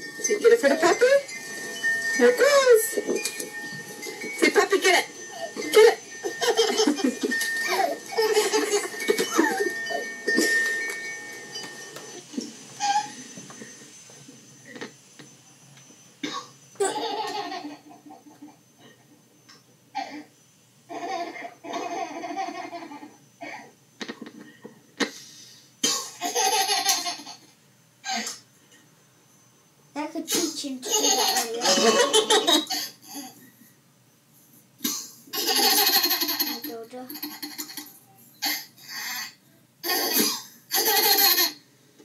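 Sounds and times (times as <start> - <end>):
thin high tone: 0.0 - 18.9
child giggling and squealing: 5.6 - 10.0, 12.8 - 13.2.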